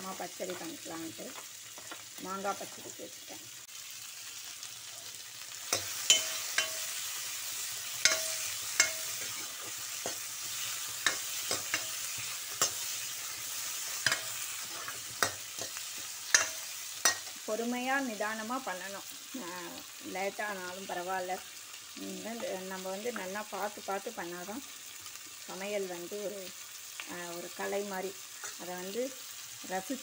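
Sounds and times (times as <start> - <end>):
vegetables sizzling in hot oil: 0.0 - 30.0
metal spoon clinking on pan: 5.7 - 7.0, 8.0 - 10.3, 11.0 - 13.0, 13.9 - 17.4.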